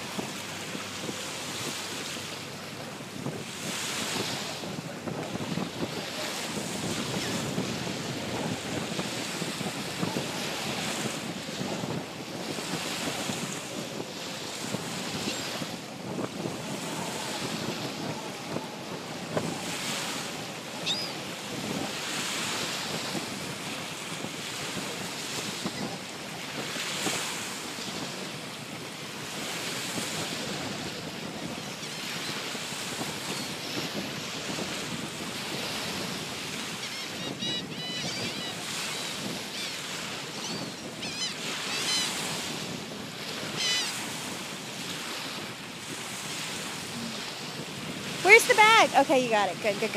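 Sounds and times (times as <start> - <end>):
small surf: 0.0 - 49.9
wind on microphone: 0.0 - 49.9
gulls calling: 20.7 - 21.3, 36.8 - 42.2, 43.5 - 44.0.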